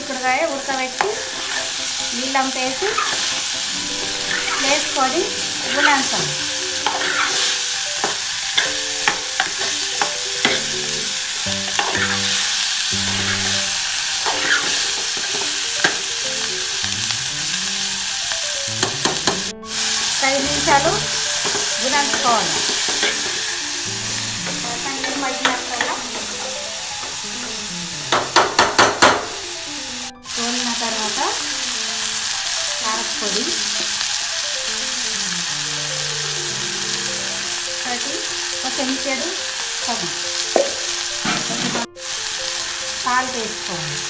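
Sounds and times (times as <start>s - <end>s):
beans sizzling in hot oil: 0.0s - 44.0s
spatula scraping metal pot: 2.6s - 10.9s, 11.7s - 15.5s, 20.0s - 23.5s
spatula knocking on pot: 18.8s - 19.5s, 28.1s - 29.4s, 40.6s - 41.8s.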